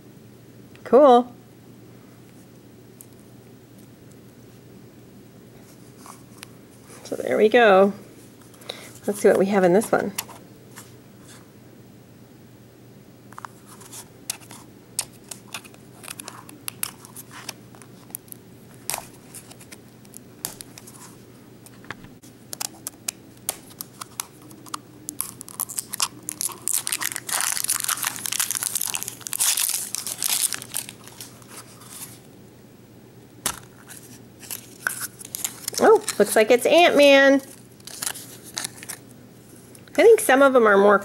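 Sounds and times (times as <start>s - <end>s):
plastic wrapping crinkling and tearing: 13.4s - 21.2s, 22.5s - 32.3s, 33.4s - 36.4s, 37.4s - 39.1s.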